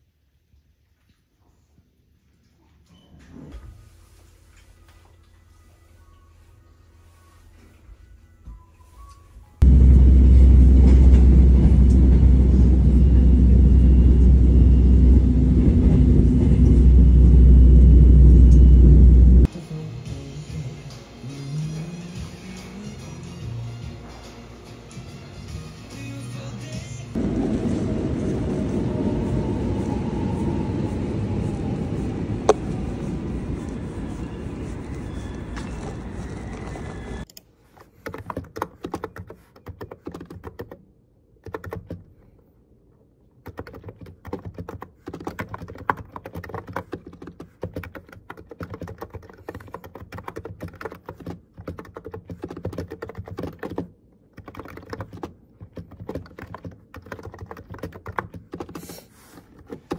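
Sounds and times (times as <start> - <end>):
background music: 19.5 - 27.2
fast typing on keyboard: 38.0 - 40.8, 41.4 - 42.2, 43.4 - 59.9.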